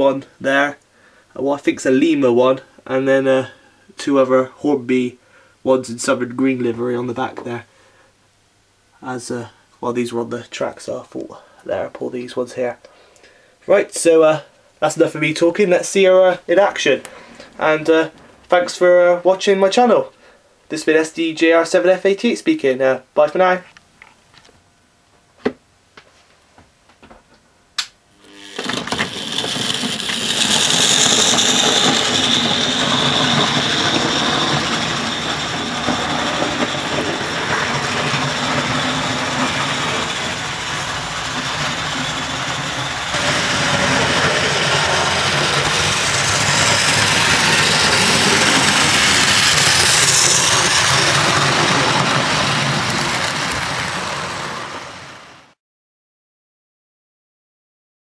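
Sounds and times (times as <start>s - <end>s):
model train motor whirring: 28.1s - 55.4s.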